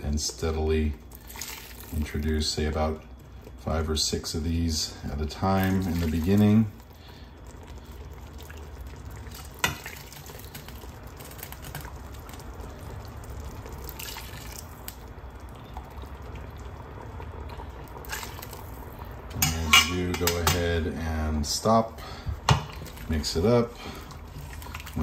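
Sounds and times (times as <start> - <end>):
liquid pouring and splashing: 0.3 - 3.8, 5.1 - 19.5, 22.4 - 25.0
ladle clinking against pot: 19.4 - 20.7.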